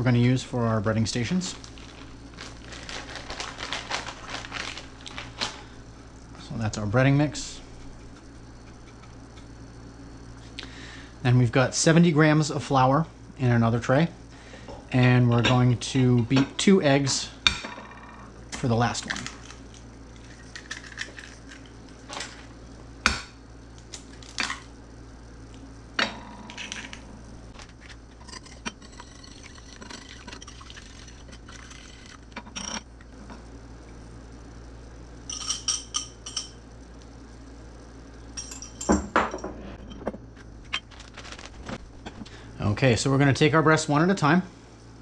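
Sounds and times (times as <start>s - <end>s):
eggs cracking: 19.1s - 22.0s, 26.5s - 33.2s.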